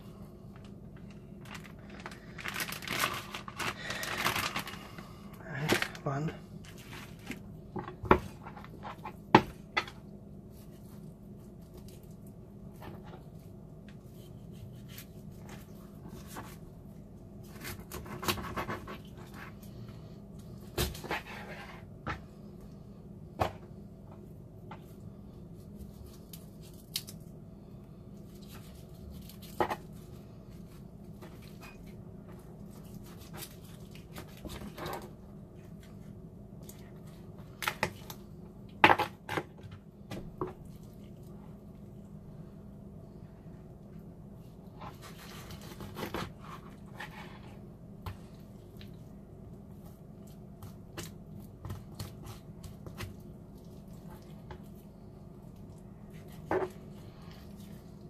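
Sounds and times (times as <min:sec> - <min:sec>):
faint steady hum: 0:00.0 - 0:58.0.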